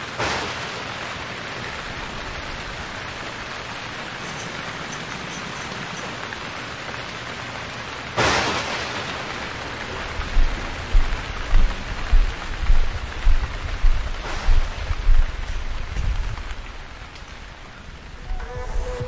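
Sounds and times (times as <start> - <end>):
steady rain-like hiss: 0.0 - 19.0
low thumps at even pace: 10.2 - 16.5.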